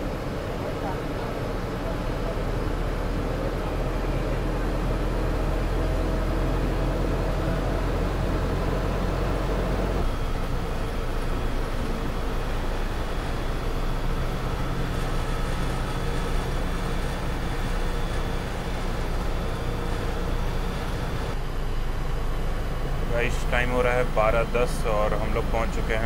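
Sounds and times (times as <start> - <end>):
bus engine and road noise: 0.0 - 26.0.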